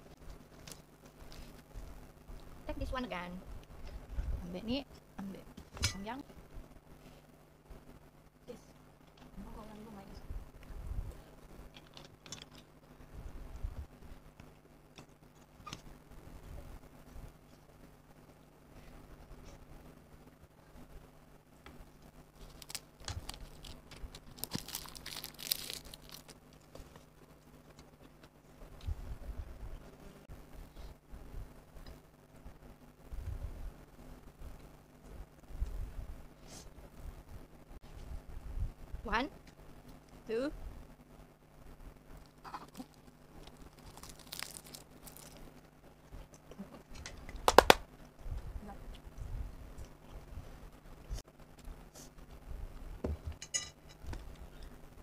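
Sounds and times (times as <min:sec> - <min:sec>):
crinkling crackling eating: 0:10.6 - 0:19.7, 0:21.6 - 0:29.0, 0:42.0 - 0:52.4
seaweed sheet crackling: 0:22.4 - 0:26.7, 0:43.4 - 0:45.6.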